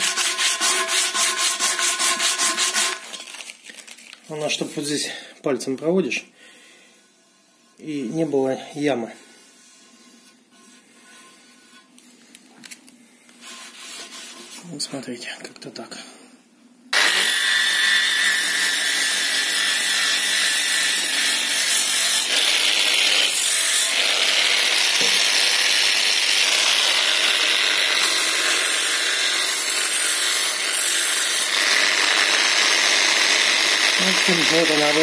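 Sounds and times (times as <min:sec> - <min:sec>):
power sander grinding metal: 0:17.0 - 0:35.0.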